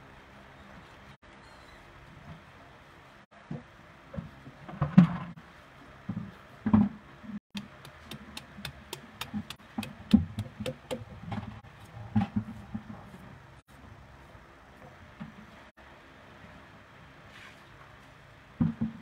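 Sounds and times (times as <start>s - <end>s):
dull thuds and knocks: 7.6s - 13.0s, 18.6s - 19.0s.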